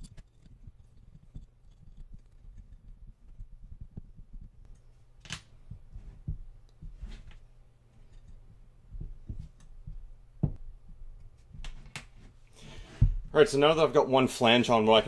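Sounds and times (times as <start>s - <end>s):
small metal clicks and knocks: 0.0s - 3.5s
low steady hum: 0.0s - 15.0s.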